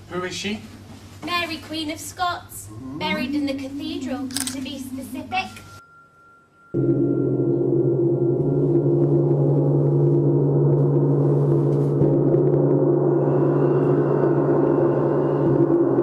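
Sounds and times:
deep resonant drone: 2.6s - 16.0s.

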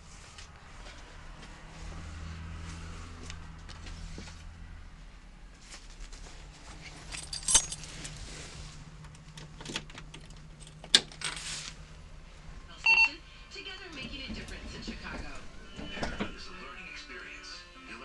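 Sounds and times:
short metallic jingling: 7.0s - 8.1s.

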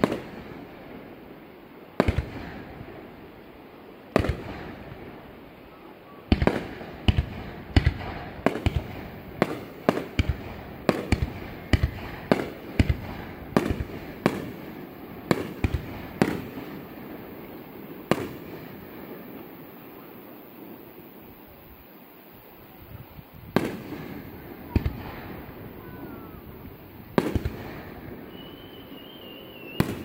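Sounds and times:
fireworks shells bursting: 23.6s - 30.0s.

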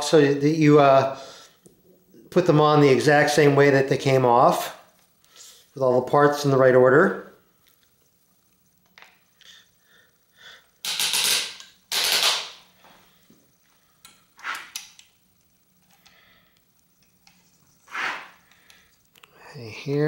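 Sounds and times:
rapid rattling clicks of metal parts: 10.8s - 12.5s.

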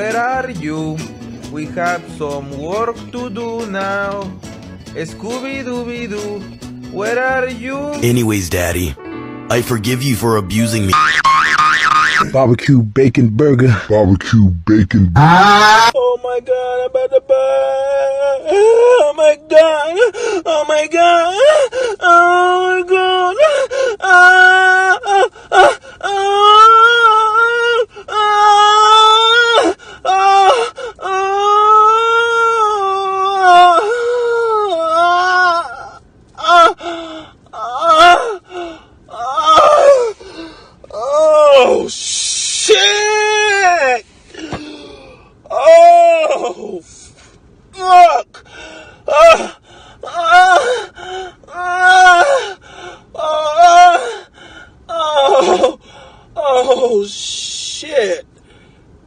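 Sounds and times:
person wailing: 15.0s - 16.0s
person crying out: 15.1s - 16.0s.

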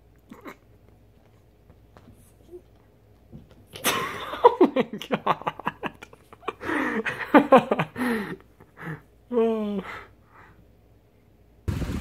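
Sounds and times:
person laughing: 3.8s - 10.0s.

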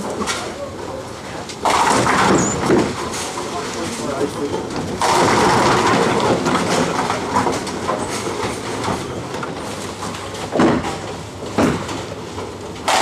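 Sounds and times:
bowling balls rolling: 0.0s - 4.0s, 4.6s - 13.0s
sharp knocks: 10.5s - 11.0s.

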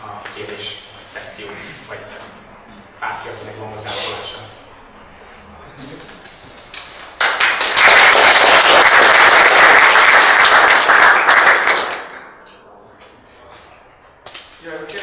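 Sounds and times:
audience applause: 7.2s - 12.4s.

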